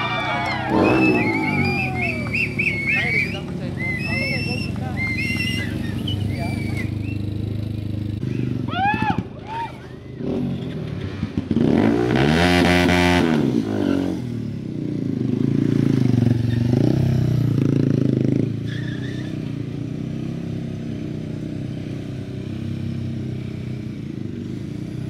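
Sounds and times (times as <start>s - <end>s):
motorcycle engine revving: 0.5s - 9.4s, 10.1s - 25.0s.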